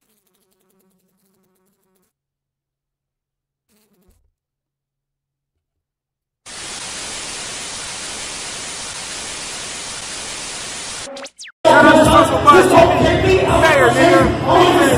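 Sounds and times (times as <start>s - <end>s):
television static hiss: 6.5s - 11.1s.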